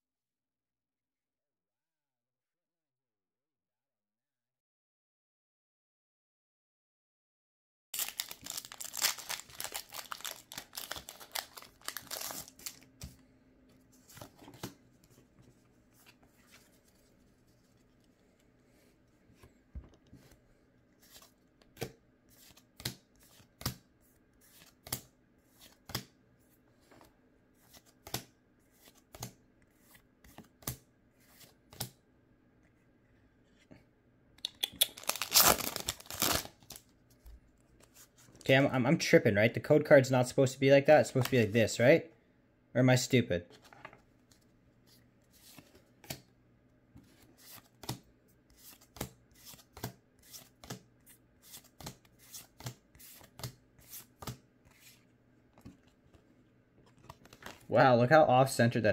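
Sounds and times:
foil pack tearing open: 0:08.0 - 0:12.8, 0:35.0 - 0:36.8
foil wrapper crinkling: 0:08.0 - 0:13.0, 0:34.9 - 0:36.8.

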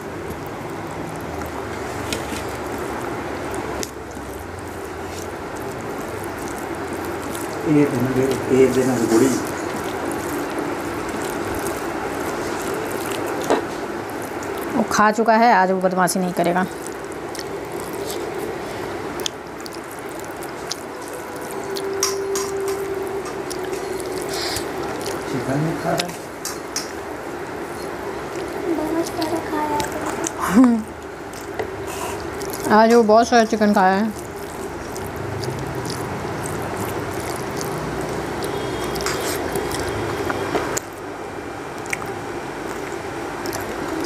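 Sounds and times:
person chewing: 0:00.0 - 0:15.0, 0:16.0 - 0:44.0
faint hum: 0:00.0 - 0:44.0
steady background noise: 0:00.0 - 0:44.0
fingers squishing food on plate: 0:16.1 - 0:27.0, 0:33.6 - 0:40.9.

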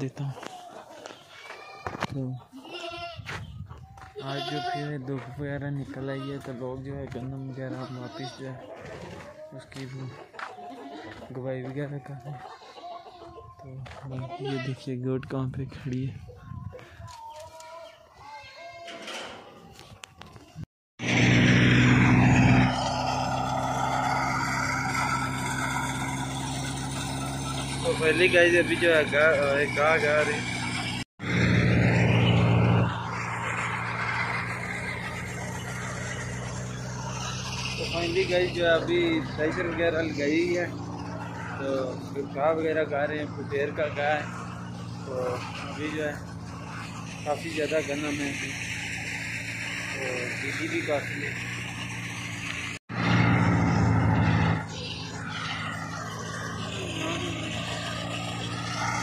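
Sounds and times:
thresher engine hum: 0:21.0 - 0:59.0
thresher rushing noise: 0:21.0 - 0:59.0.

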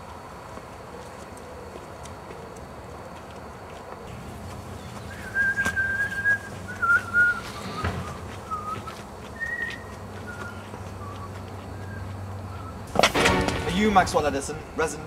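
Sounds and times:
person whistling: 0:05.1 - 0:12.0.

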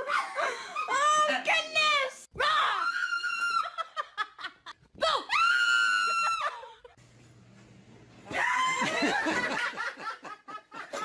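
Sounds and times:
laughter: 0:03.5 - 0:04.8, 0:08.6 - 0:11.0.

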